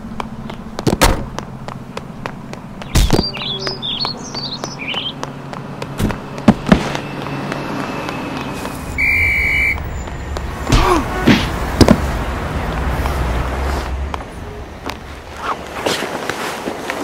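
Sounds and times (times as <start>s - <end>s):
low traffic rumble: 0.0s - 17.0s
short high whistle: 8.9s - 9.8s.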